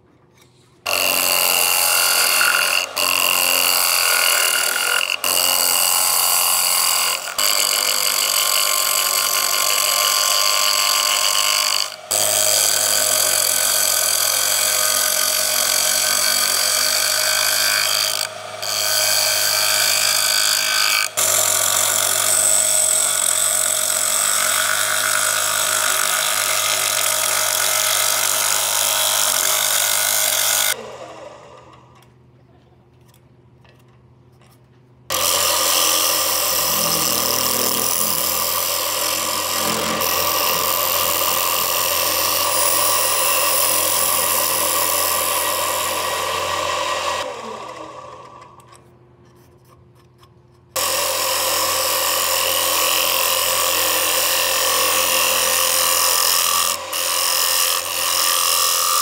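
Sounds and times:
gouge scraping wood on lathe: 35.1s - 44.9s.

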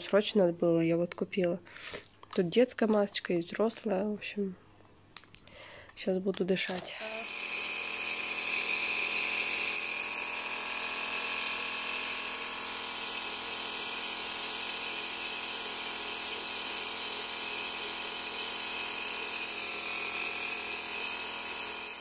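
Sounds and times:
nebulizer motor hum: 7.0s - 22.0s.

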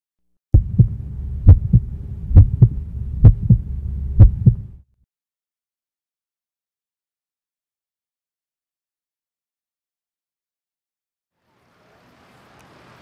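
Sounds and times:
heartbeat thumps: 0.6s - 4.8s
steady low hum: 0.6s - 4.8s.

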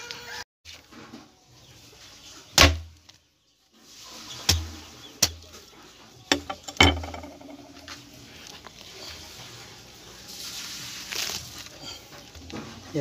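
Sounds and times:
fruit pulled apart by hand: 10.9s - 11.8s.

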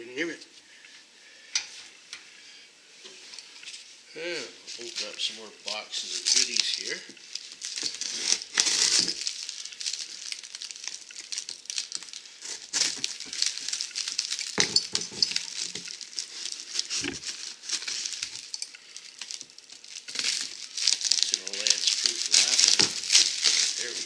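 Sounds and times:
packing paper and plastic crinkling: 4.6s - 24.0s
metal parts knocking and clinking: 13.0s - 16.0s.

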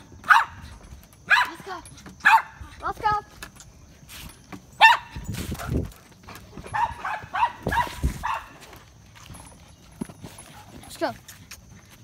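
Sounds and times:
dogs barking: 0.2s - 0.7s, 1.3s - 1.6s, 2.2s - 2.6s, 4.8s - 5.9s, 6.5s - 8.7s.

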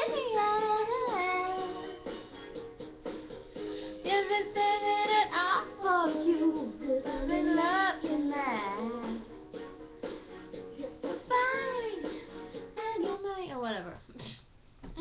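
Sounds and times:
woman singing: 0.0s - 1.8s, 4.0s - 9.3s, 10.8s - 13.7s
light instrumental backing: 0.0s - 14.0s.

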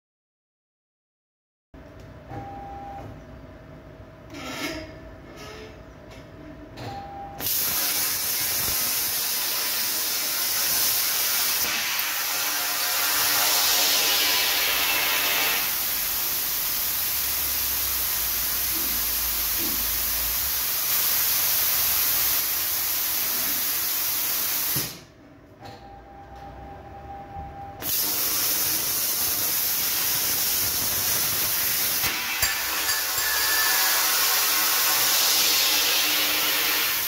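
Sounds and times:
compressed air hissing: 7.4s - 14.8s, 15.5s - 25.0s, 27.8s - 37.0s.

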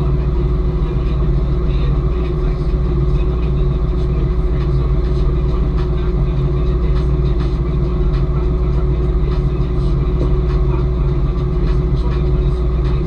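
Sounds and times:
boat engine running: 0.0s - 13.0s.

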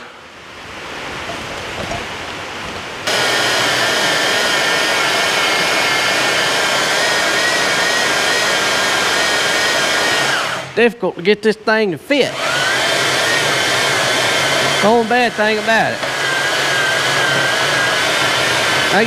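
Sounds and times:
band saw cutting steel: 3.1s - 10.8s, 12.2s - 19.0s.

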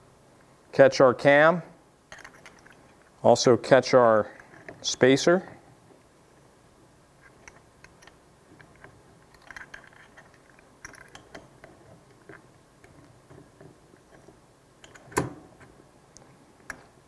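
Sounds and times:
metal parts clicking and rattling: 2.1s - 3.0s, 7.2s - 15.8s.

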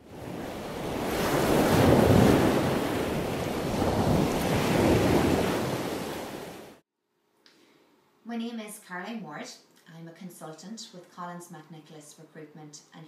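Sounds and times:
ocean surf rushing: 0.0s - 6.8s.

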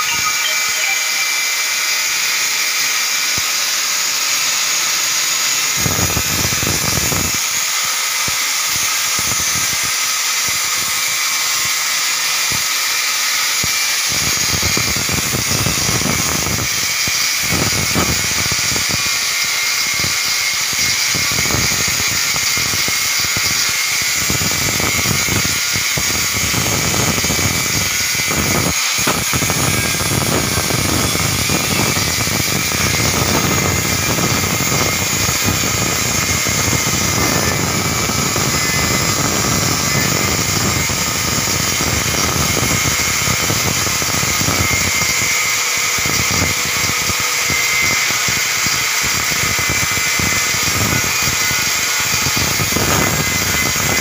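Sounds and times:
angle grinder whine: 0.0s - 54.0s
grinding disc biting metal: 13.3s - 54.0s.

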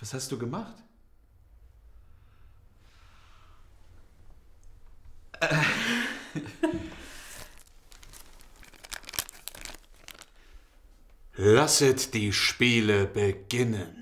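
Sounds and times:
rustling and tearing: 7.2s - 10.4s.

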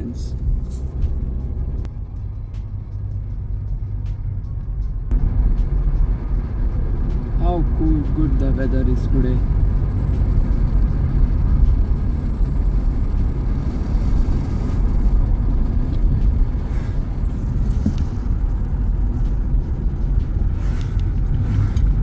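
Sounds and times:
car road rumble from inside: 0.0s - 22.0s.

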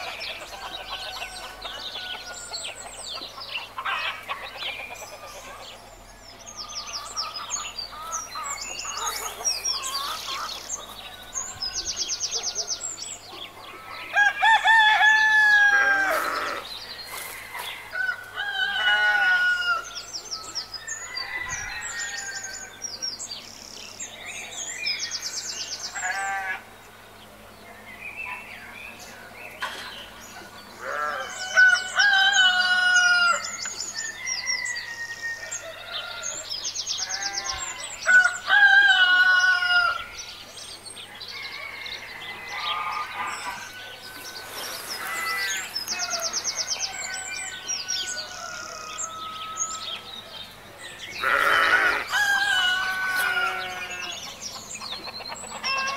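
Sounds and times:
hens clucking: 0.0s - 5.9s, 6.9s - 11.2s, 51.2s - 55.9s
small birds chirping: 0.0s - 14.5s, 39.3s - 55.9s
rooster crowing: 14.0s - 22.8s, 30.8s - 36.5s, 37.8s - 40.2s, 41.3s - 50.1s, 51.2s - 54.3s.

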